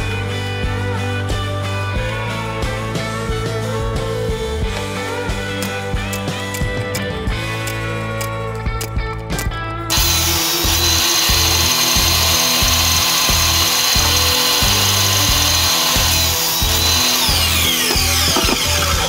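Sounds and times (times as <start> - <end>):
background music with beat: 0.0 - 19.0
saw blade winding down: 9.9 - 19.0
table saw whining: 9.9 - 19.0.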